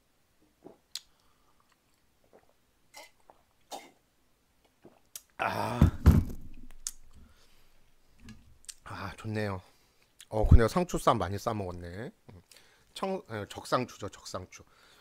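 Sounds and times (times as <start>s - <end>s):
man chewing: 0.6s - 3.7s.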